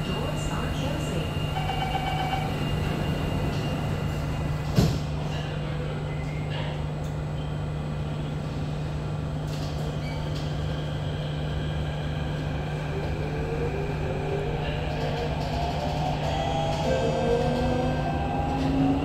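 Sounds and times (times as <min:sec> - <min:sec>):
train running hum: 0:00.0 - 0:19.0.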